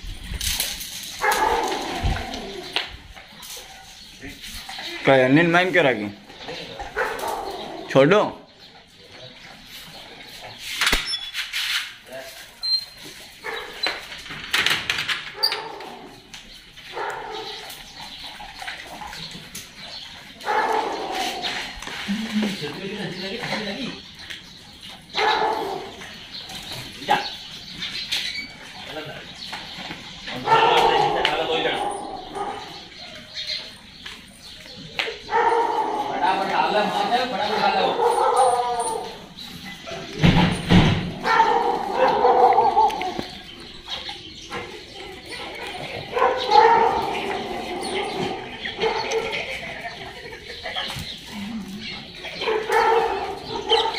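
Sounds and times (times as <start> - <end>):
dogs whining and barking: 0.0 - 5.1, 6.3 - 11.4, 12.5 - 22.8, 23.6 - 53.9
dog barking: 1.2 - 1.8, 6.9 - 7.7, 16.9 - 17.6, 20.4 - 21.4, 25.1 - 26.0, 30.4 - 32.8, 35.3 - 36.4, 37.4 - 39.1, 41.2 - 43.2, 46.1 - 47.3, 48.8 - 49.3, 52.4 - 53.9.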